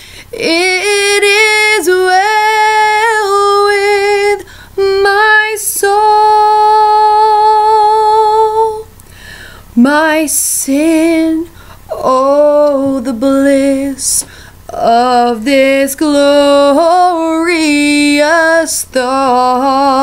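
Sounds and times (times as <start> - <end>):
woman singing a hymn: 0.0 - 9.0, 9.7 - 20.0.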